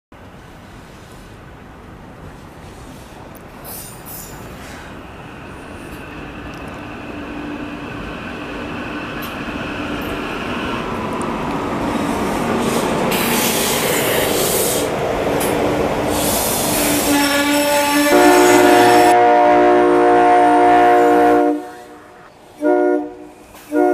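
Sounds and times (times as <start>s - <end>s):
train rumble and hum: 0.2s - 23.9s
rushing hiss of train cars: 0.3s - 6.8s, 11.5s - 19.3s, 20.1s - 23.9s.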